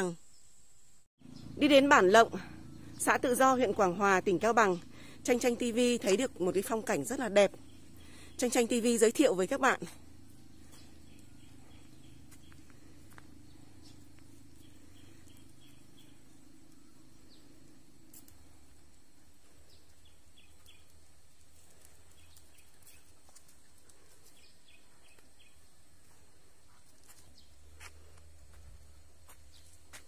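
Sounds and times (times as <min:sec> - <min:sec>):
low hum: 0:00.2 - 0:30.0.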